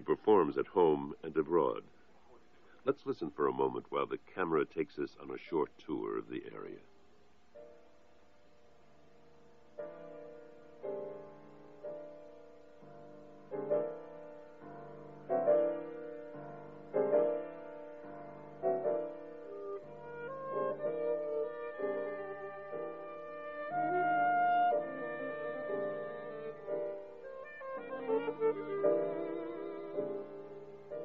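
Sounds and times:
piano chords: 7.5s - 31.0s
violin playing: 20.1s - 30.6s.

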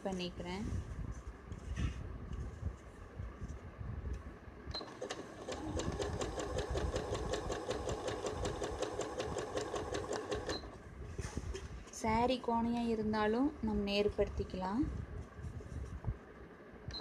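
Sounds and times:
sewing machine running: 4.8s - 10.8s.

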